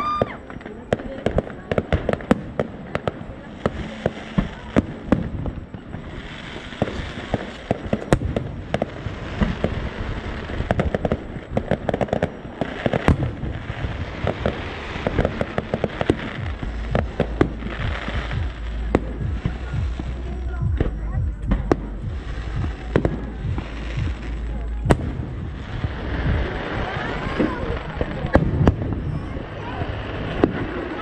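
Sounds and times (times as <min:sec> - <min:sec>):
fireworks bangs and pops: 0:00.0 - 0:31.0.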